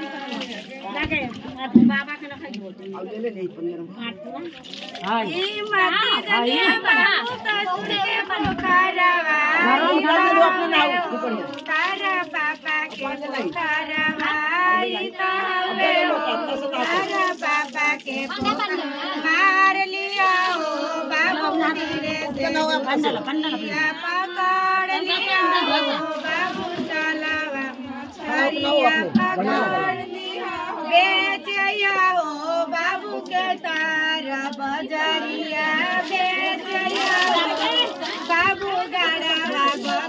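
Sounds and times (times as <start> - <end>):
women singing together: 0.0 - 2.1, 5.2 - 40.0.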